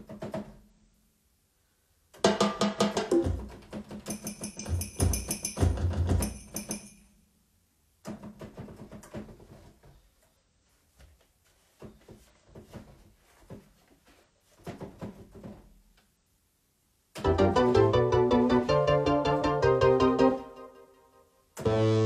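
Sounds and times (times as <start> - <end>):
drum beat: 2.2 - 6.8
fingers tapping keyboard keys: 3.1 - 6.9.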